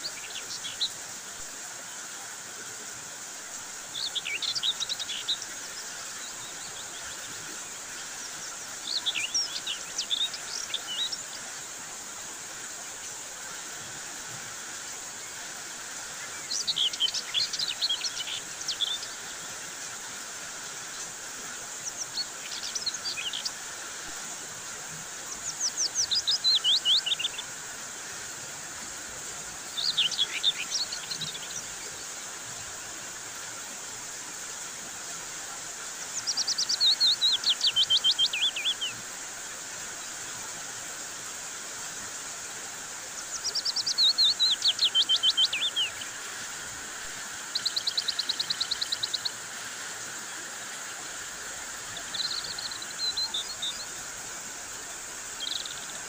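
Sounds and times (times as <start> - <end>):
songbird singing: 0.0 - 1.0, 3.7 - 11.6, 15.2 - 20.0, 20.6 - 24.3, 24.9 - 33.1, 35.4 - 39.1, 43.0 - 56.0.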